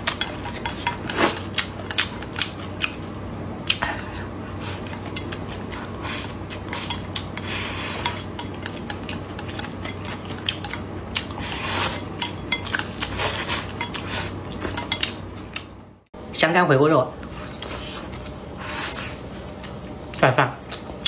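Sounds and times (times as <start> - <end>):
eating sounds: 0.0 - 15.7.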